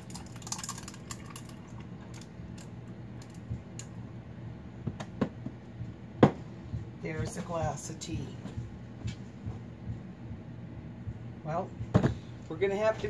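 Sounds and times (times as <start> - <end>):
ice cracking in a glass: 0.0 - 1.6
liquid pouring splash: 0.0 - 2.3.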